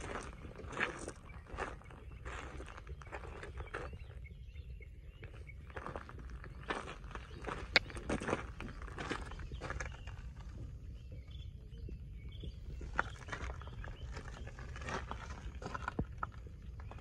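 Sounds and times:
footsteps crunching on gravel: 0.0 - 4.0, 5.7 - 10.7, 12.8 - 17.0.

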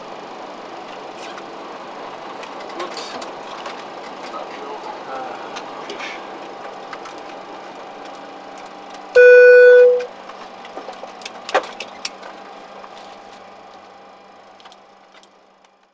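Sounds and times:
cockpit hum: 8.9 - 10.4
electronic beep: 9.2 - 10.1.

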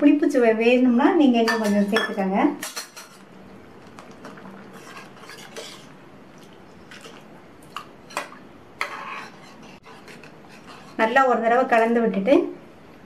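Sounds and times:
ladle scraping a saucepan: 4.4 - 5.9, 8.0 - 11.2.

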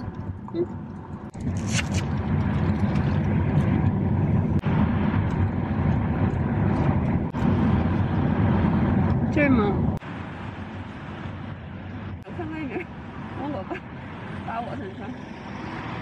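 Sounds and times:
car road noise: 0.0 - 16.0
rushing wind: 0.0 - 16.0.

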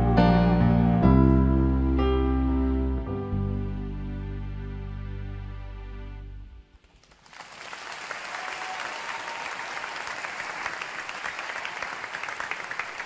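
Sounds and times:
audience applause: 6.8 - 13.0.

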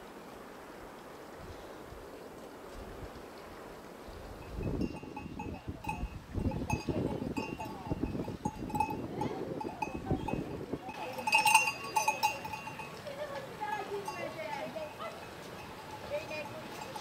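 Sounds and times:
cowbell clanking: 4.5 - 17.0.

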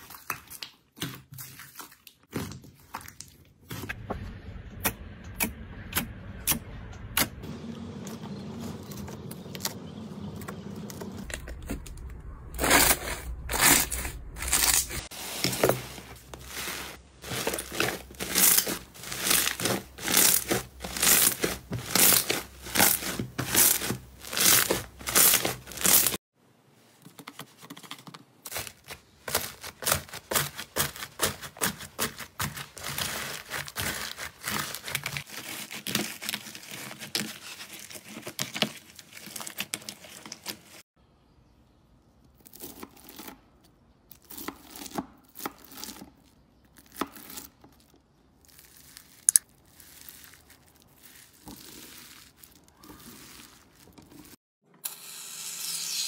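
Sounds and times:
foam bead slime crackling: 12.6 - 26.2, 28.5 - 40.8, 46.7 - 54.4.

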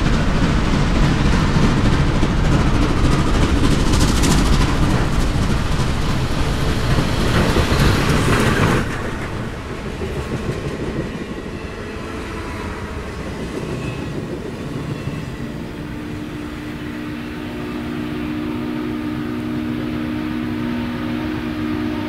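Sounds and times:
train cars rumbling on rails: 0.0 - 22.0
steam whistle chord: 15.4 - 22.0.

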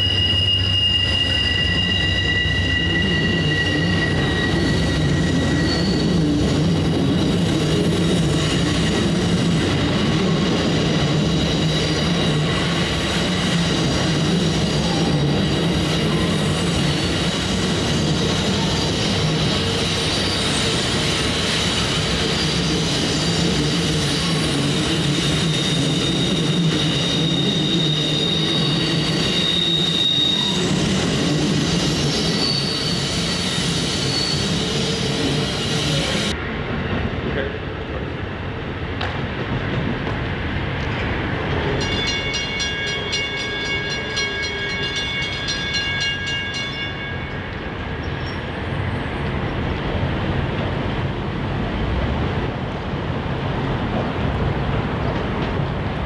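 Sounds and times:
train wheels squealing: 0.0 - 36.4, 41.5 - 49.7
low rumble of train wheels: 0.0 - 56.0.

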